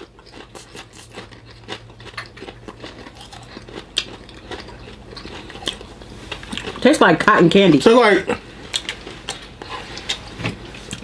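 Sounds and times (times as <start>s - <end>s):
people chewing popcorn: 0.0s - 7.0s, 8.3s - 11.0s.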